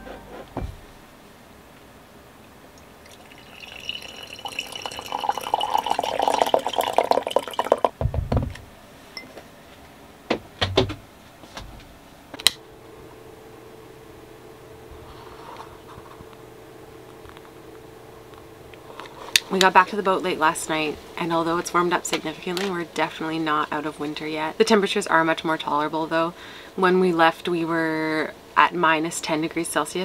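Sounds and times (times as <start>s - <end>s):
low thud: 0.6s - 1.0s, 8.0s - 8.6s
coffee pouring into mug: 3.0s - 8.0s.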